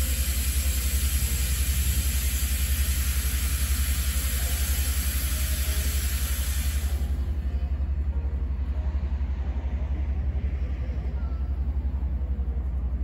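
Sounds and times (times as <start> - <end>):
locomotive steam hiss: 0.0 - 7.5
low rapid throb: 0.0 - 13.0.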